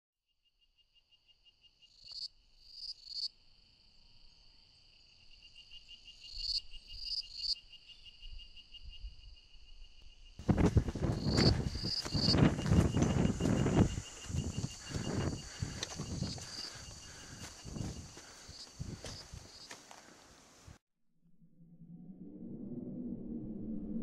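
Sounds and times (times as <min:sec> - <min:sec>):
insect buzzy calls: 0:00.7 - 0:20.8
insects trilling: 0:01.0 - 0:20.7
rough crackling and rustling: 0:10.4 - 0:20.4.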